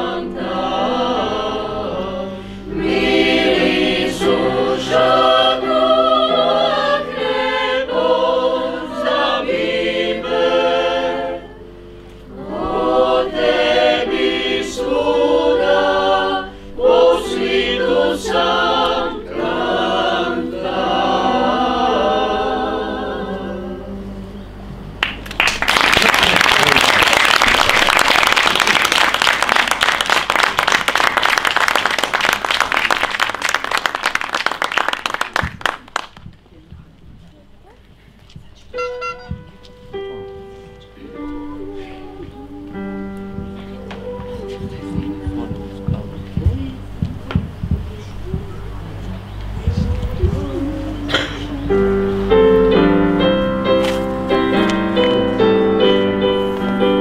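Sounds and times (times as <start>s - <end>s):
mixed choir singing: 0.0s - 24.6s, 40.9s - 47.0s, 49.5s - 57.0s
audience applause: 25.0s - 36.2s.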